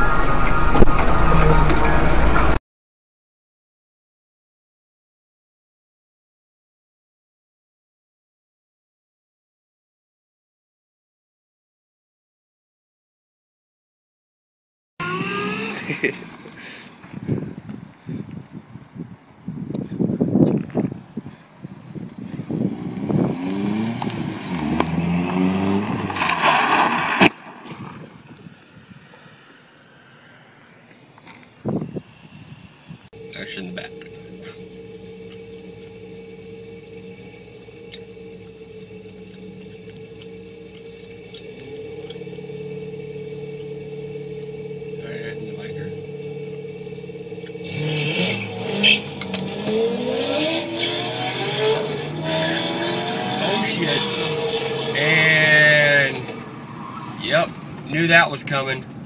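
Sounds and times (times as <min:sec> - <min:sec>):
car engine revving: 0:15.0 - 0:17.1, 0:22.3 - 0:59.0
tyres skidding: 0:22.4 - 0:59.0.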